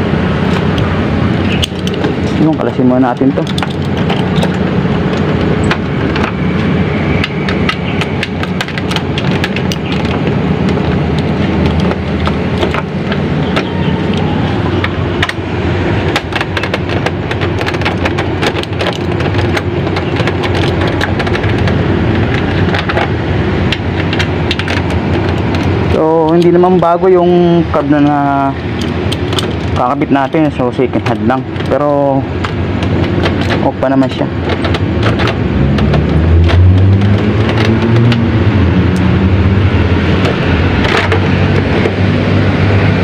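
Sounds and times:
loud rumbling noise: 0.0 - 43.0.

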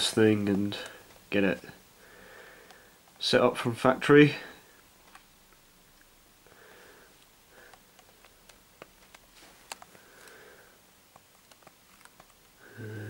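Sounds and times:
soft rustling: 8.0 - 12.4.

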